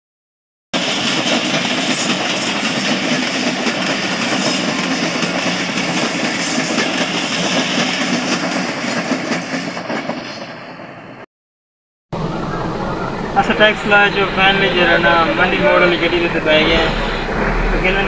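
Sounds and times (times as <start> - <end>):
moving vehicle rumble and rattle: 0.8 - 10.2, 12.2 - 18.0.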